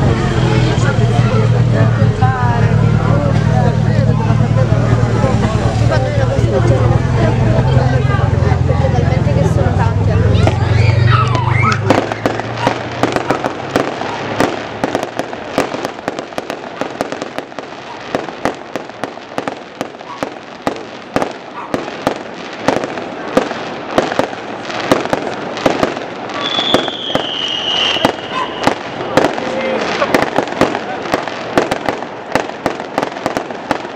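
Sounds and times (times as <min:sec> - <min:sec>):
fireworks bangs and crackles: 0:00.0 - 0:33.9
high firework whistle: 0:10.4 - 0:14.2, 0:26.3 - 0:30.2.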